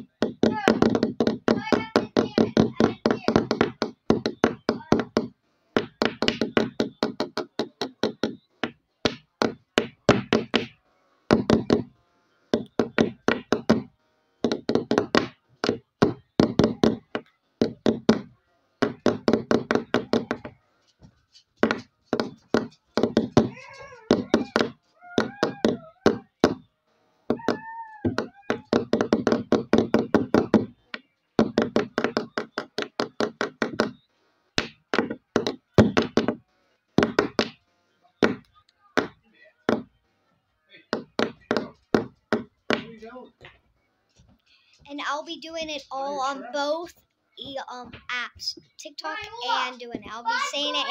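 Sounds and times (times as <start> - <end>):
child's high vocal squeals: 23.5 - 26.2, 27.4 - 28.7.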